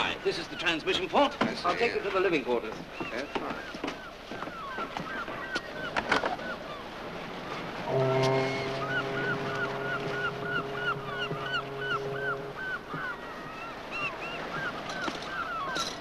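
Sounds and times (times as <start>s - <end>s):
seagulls calling: 0.0s - 16.0s
low steady horn tone: 7.7s - 13.8s.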